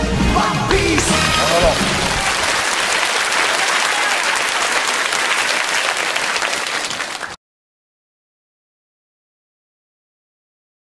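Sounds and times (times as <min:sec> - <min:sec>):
audience applauding: 0:00.7 - 0:07.4.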